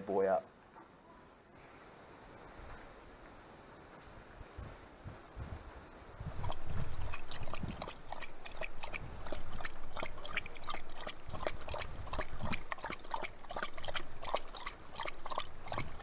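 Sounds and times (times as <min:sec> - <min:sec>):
fuel glugging into tank: 0:06.3 - 0:16.0.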